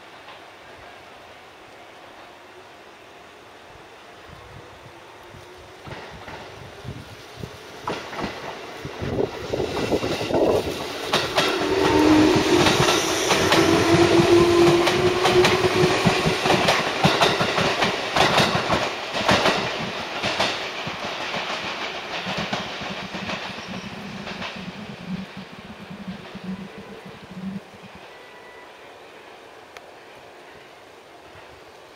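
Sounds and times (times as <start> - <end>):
electric train passing: 0.0 - 31.9
train wheels clattering over rail joints: 7.8 - 26.8.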